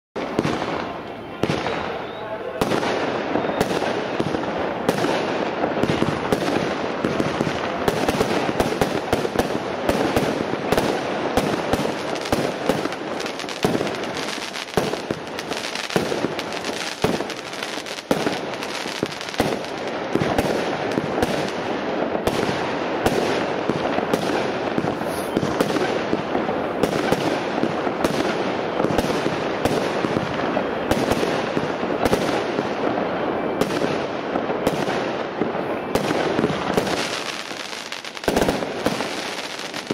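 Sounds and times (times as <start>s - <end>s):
firework bangs and pops: 0.2s - 39.9s.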